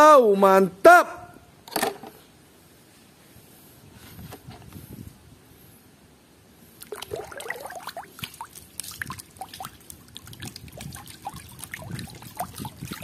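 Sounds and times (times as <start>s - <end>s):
water splashing and sloshing: 6.8s - 13.0s.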